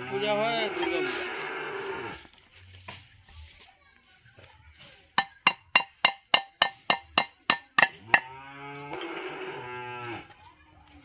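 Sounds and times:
metal struck rhythmically: 0:05.2 - 0:08.3.

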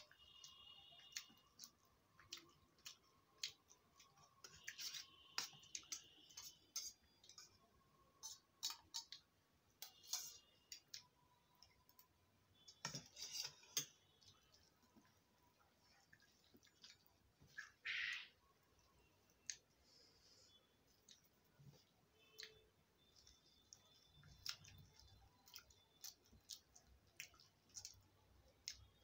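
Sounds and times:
spoon scraping steel bowl: 0:04.4 - 0:07.6, 0:08.2 - 0:09.1, 0:09.8 - 0:10.7, 0:12.8 - 0:14.0.

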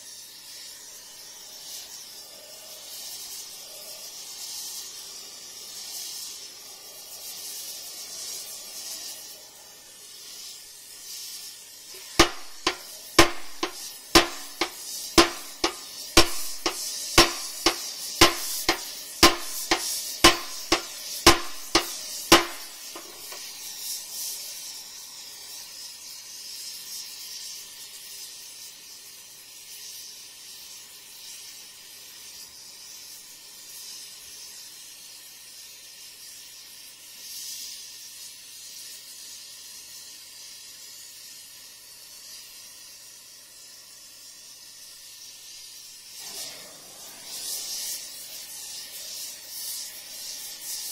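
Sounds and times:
torch hissing: 0:00.0 - 0:50.9
hammer blows on steel: 0:12.0 - 0:23.4.

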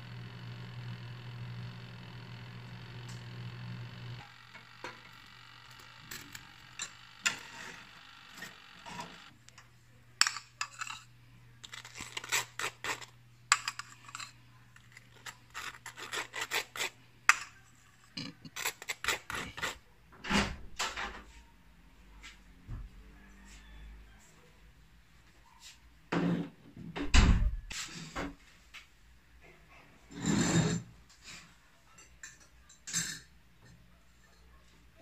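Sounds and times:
metal spoon scraping ceramic: 0:10.2 - 0:19.8, 0:30.1 - 0:30.9.

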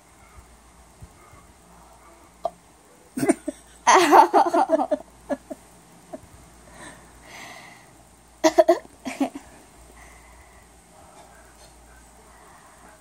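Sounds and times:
girl giggling: 0:03.2 - 0:05.6, 0:08.4 - 0:09.5.

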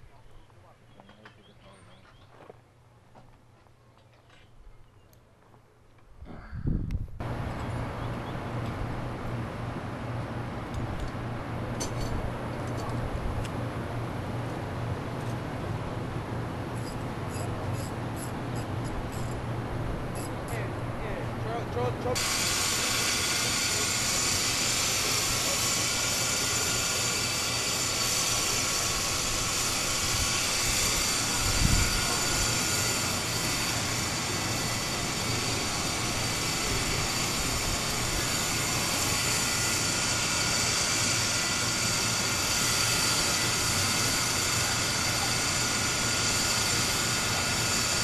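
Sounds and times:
engine running: 0:07.2 - 0:48.0
high whine: 0:15.2 - 0:48.0.

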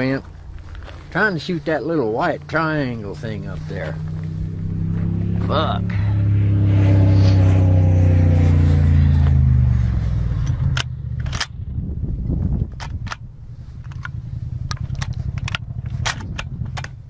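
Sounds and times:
low steady hum: 0:00.0 - 0:17.0
shotgun action metallic clicks: 0:10.4 - 0:11.6, 0:12.7 - 0:17.0.

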